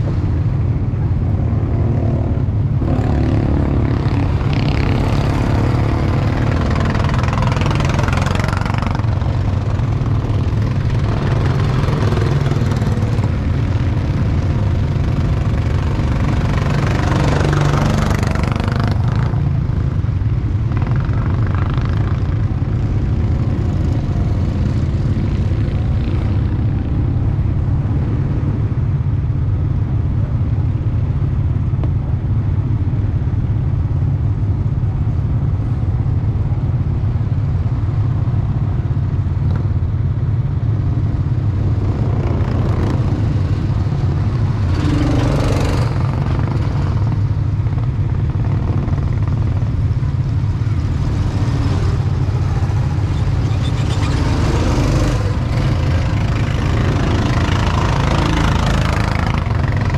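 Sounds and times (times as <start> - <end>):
go-kart engines running: 2.4 - 27.6, 41.0 - 59.9.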